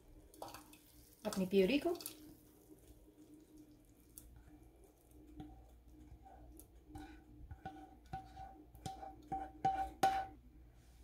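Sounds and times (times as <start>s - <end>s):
spatula tapping frying pan: 5.3s - 10.4s.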